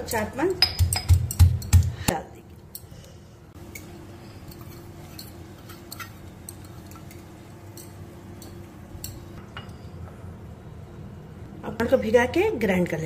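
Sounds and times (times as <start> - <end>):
steel kitchen utensils clinking: 3.6 - 10.0.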